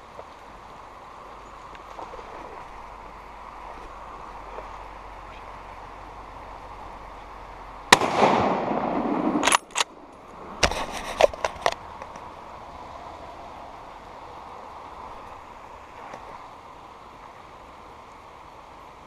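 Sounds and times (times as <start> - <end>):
river rushing: 0.0 - 19.0
rifle shot: 7.9 - 9.8.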